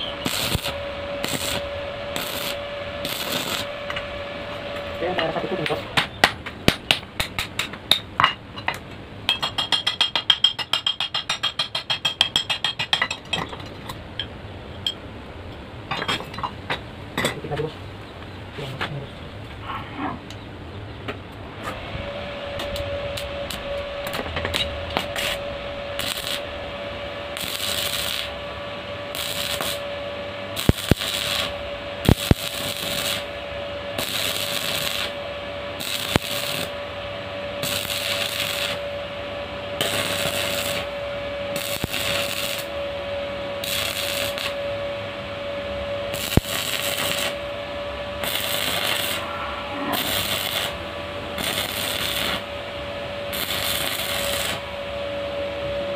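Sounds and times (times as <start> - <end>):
welding arc crackling: 0.0 - 5.4, 22.6 - 26.6, 27.3 - 28.4, 29.0 - 29.9, 30.5 - 36.9, 37.6 - 39.0, 39.8 - 42.8, 43.6 - 44.6, 46.1 - 47.5, 48.2 - 49.3, 49.9 - 52.5, 53.3 - 54.7
steady hum: 0.0 - 55.9.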